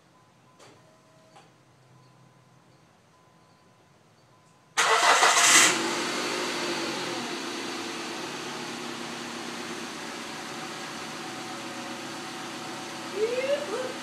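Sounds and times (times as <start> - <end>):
car engine starting and idling: 4.8 - 14.0.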